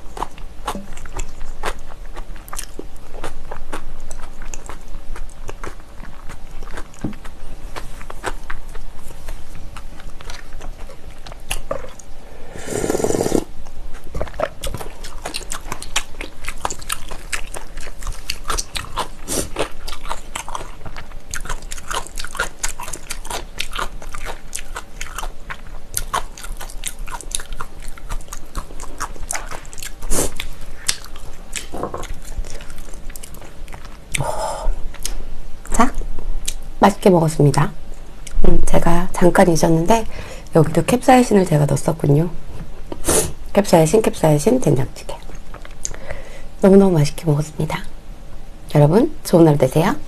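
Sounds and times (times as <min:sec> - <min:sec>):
close-miked chewing: 0:00.0 - 0:36.6, 0:37.5 - 0:40.0, 0:43.8 - 0:46.0
wet mouth clicks: 0:11.5 - 0:17.6.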